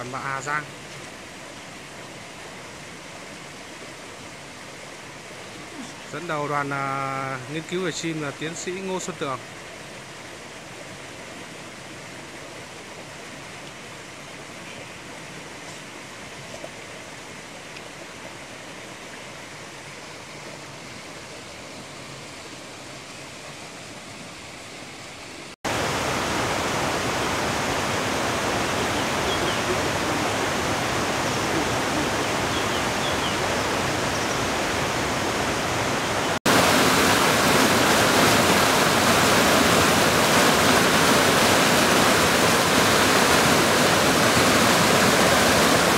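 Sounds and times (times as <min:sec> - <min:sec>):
water rushing over boulders: 0:00.0 - 0:45.9.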